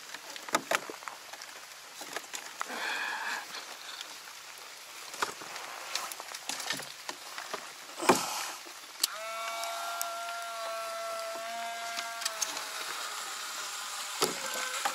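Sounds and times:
small electric motor whining: 9.0s - 14.9s.

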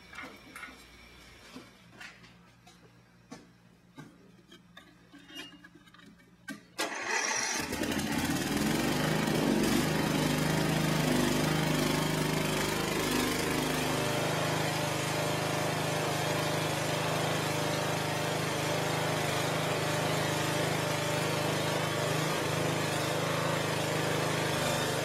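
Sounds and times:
lawn tractor engine running: 6.8s - 25.0s.

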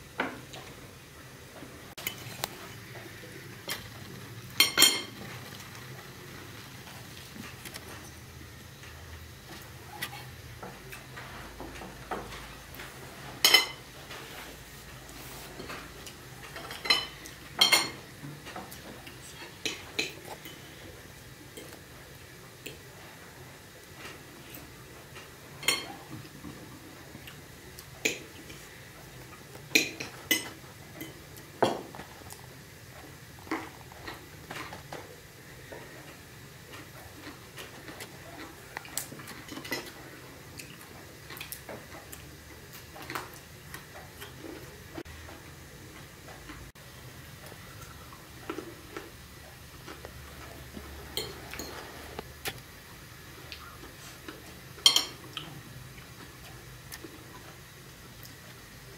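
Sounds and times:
forks clinking on china plates: 4.6s - 5.1s, 54.8s - 55.2s.

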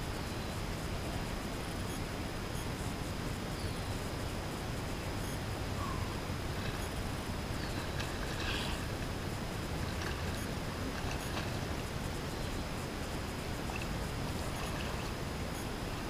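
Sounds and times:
faint chirps: 5.2s - 8.9s.

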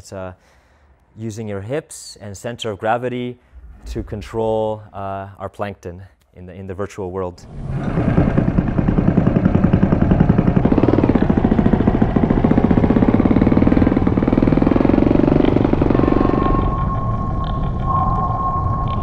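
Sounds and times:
steady high tone: 16.0s - 19.0s.

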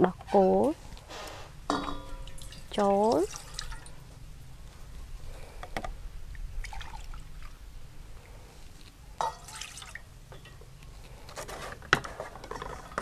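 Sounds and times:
milk dripping and splashing: 2.3s - 4.0s.

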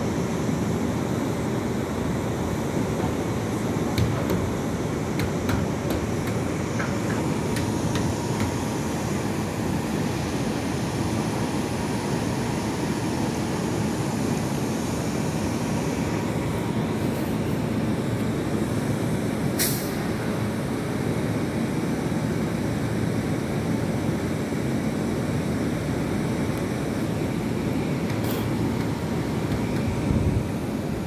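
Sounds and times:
train rumble and hum: 1.6s - 19.2s, 26.5s - 31.0s
sharp hiss of air: 19.5s - 20.4s, 28.2s - 28.7s.

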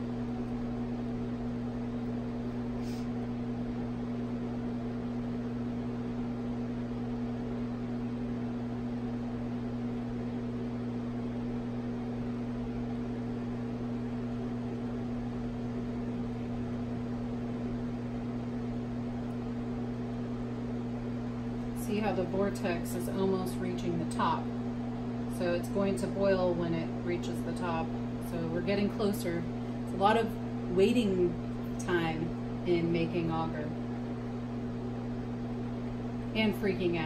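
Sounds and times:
electrical hum: 0.0s - 37.0s.

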